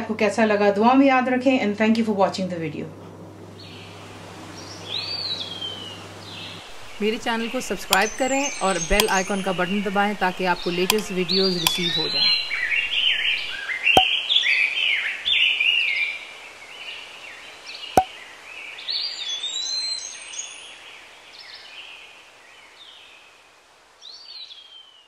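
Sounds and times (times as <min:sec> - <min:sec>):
birds chirping and whistling: 0:06.4 - 0:13.6
sharp clicks: 0:06.7 - 0:13.6.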